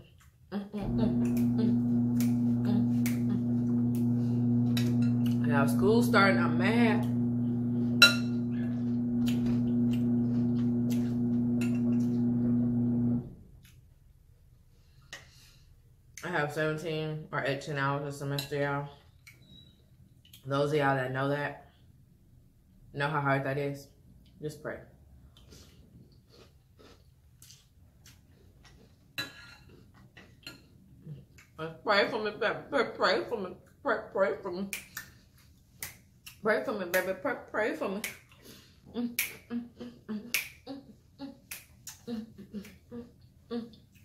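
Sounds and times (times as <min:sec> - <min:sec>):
low electric hum: 0:00.6 - 0:14.2.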